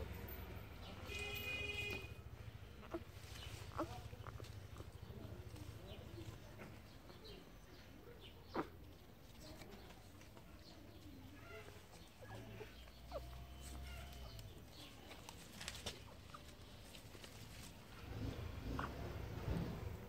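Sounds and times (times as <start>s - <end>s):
puppies sucking while nursing: 6.8s - 17.8s
newborn puppies squeaking: 11.2s - 15.0s.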